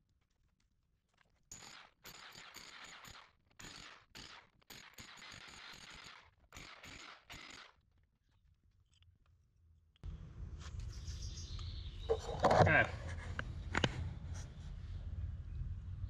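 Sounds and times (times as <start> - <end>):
power hammer chipping concrete: 1.5 - 7.6.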